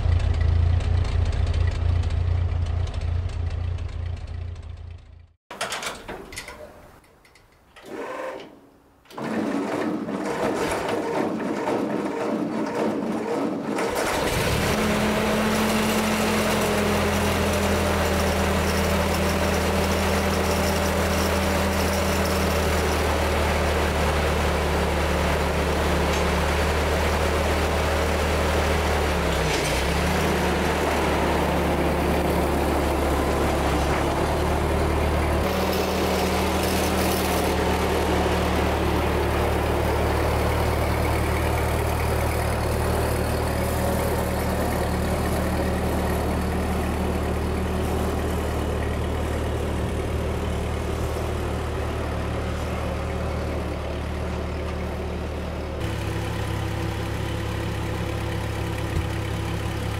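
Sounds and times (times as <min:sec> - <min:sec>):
tractor engine idling: 0:00.0 - 0:05.3, 0:15.0 - 0:59.9
engine cranked by starter: 0:07.8 - 0:53.2.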